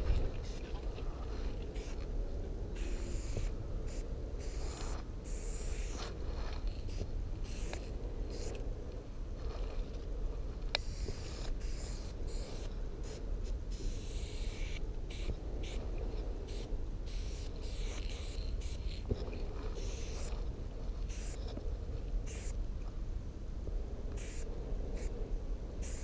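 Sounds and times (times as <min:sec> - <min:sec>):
spray can hissing: 0:06.9 - 0:08.5, 0:10.8 - 0:12.7, 0:16.5 - 0:19.0.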